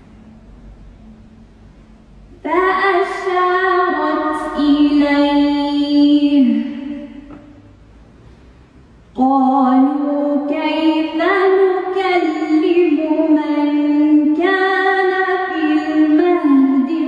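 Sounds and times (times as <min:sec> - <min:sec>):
woman chanting: 0:02.4 - 0:07.2, 0:09.2 - 0:17.0.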